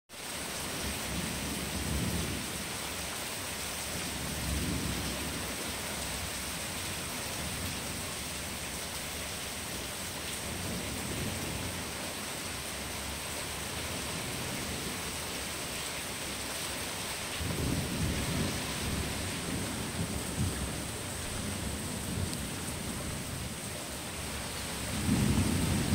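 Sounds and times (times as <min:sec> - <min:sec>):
steady rain hissing: 0:00.1 - 0:25.9
rolling thunder rumbles: 0:17.4 - 0:23.6, 0:24.3 - 0:25.9.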